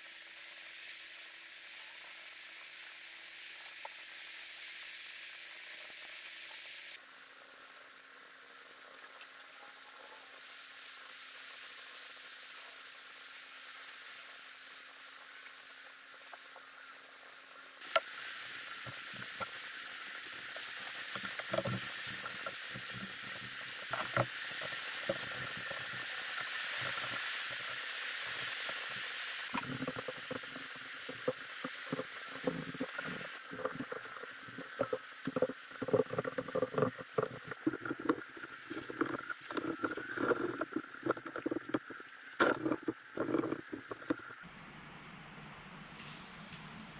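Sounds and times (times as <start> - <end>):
rag rubbing on wood: 29.5 - 44.4.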